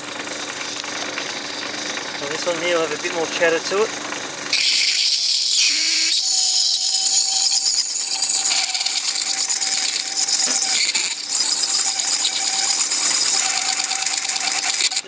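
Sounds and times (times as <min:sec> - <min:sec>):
lathe motor hum: 0:00.0 - 0:15.0
blade scraping metal on lathe: 0:04.5 - 0:15.0.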